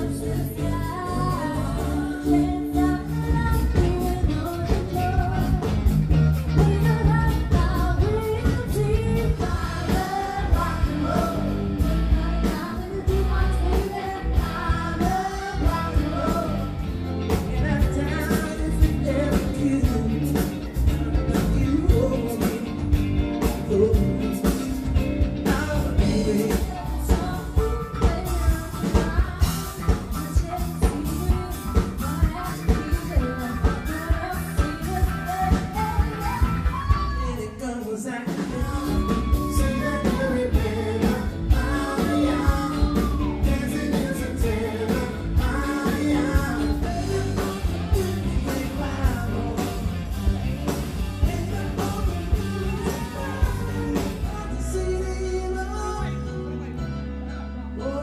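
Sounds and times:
drum beats: 0:00.0 - 0:37.4, 0:38.2 - 0:54.5
woman singing lead: 0:00.0 - 0:56.8, 0:57.5 - 0:58.0
rock band playing: 0:00.0 - 0:58.0.

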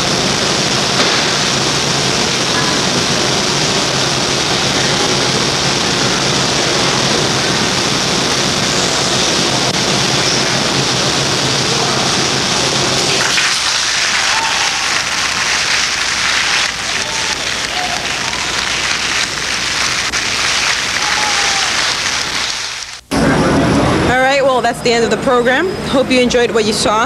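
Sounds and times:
steady rushing noise: 0:00.0 - 0:24.1
audience applause: 0:09.7 - 0:23.0.

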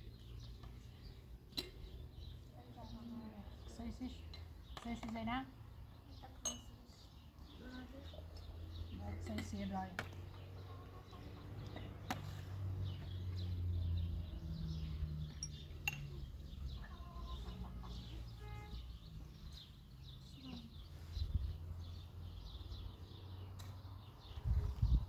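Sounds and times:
small birds chirping: 0:00.0 - 0:25.0
glasses clinking: 0:06.4 - 0:06.8, 0:15.4 - 0:16.1
chickens clucking: 0:16.8 - 0:18.3.

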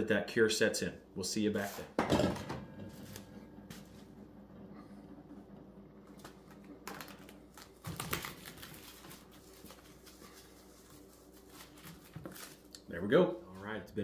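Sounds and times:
cling wrap crackling: 0:06.2 - 0:12.8.

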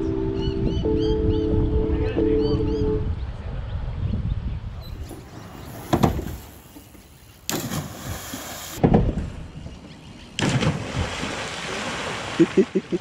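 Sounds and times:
rushing water noise: 0:07.5 - 0:08.8, 0:10.8 - 0:13.0
water thudding against camera: 0:07.5 - 0:09.4, 0:10.4 - 0:12.7.

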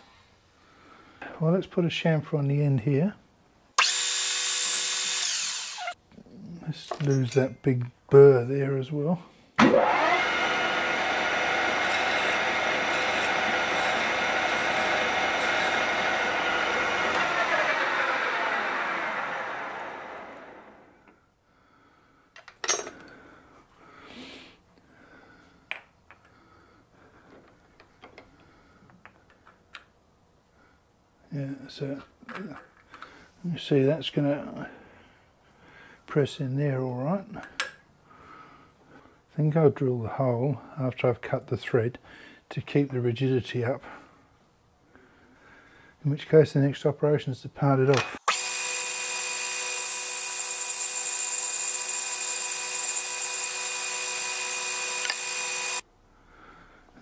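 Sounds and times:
metal lathe whining: 0:03.8 - 0:06.0, 0:09.6 - 0:20.9, 0:48.0 - 0:55.8.

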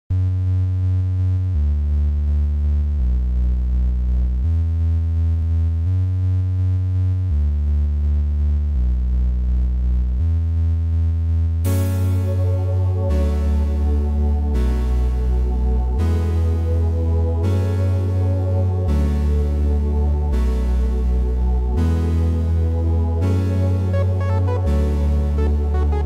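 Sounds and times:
deep synth bass: 0:00.1 - 0:26.0
synthesizer chords: 0:11.6 - 0:26.0.

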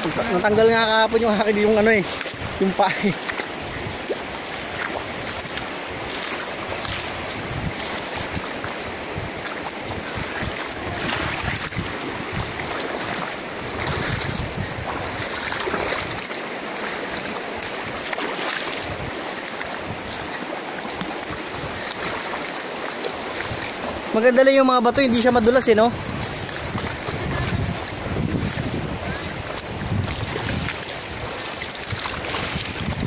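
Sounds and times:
wind buffeting microphone: 0:00.0 - 0:16.3, 0:17.1 - 0:22.4, 0:24.8 - 0:33.0
river rushing over rocks: 0:00.0 - 0:33.0.

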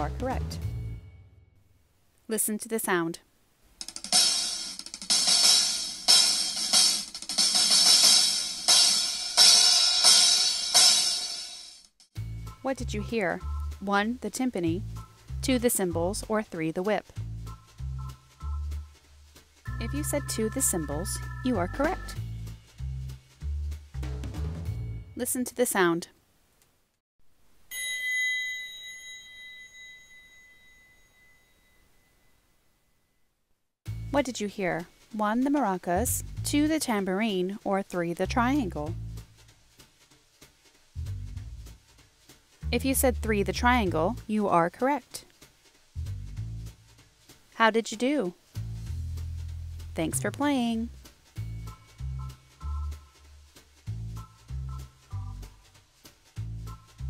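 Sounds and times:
cymbals crashing: 0:04.1 - 0:11.7
metal triangle ringing: 0:27.7 - 0:31.8.

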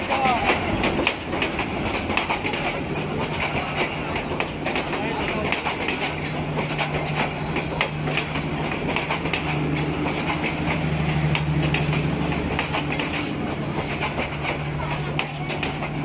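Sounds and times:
train wheels clicking over rail joints: 0:00.0 - 0:16.0.

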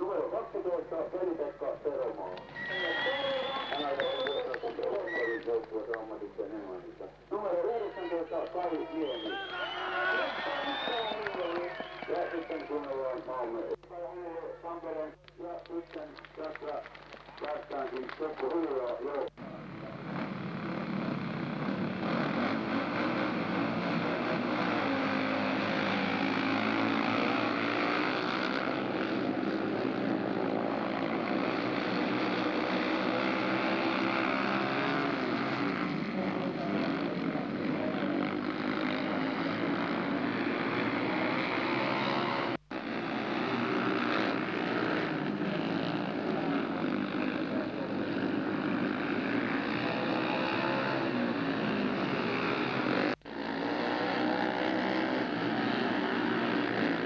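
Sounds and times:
motorcycle engines racing: 0:00.0 - 0:57.0.

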